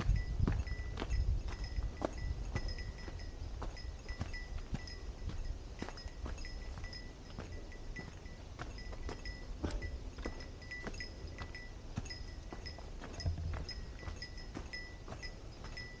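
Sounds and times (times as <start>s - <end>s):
bear bell jingling: 0.0s - 16.0s
footsteps on dirt trail: 0.0s - 16.0s.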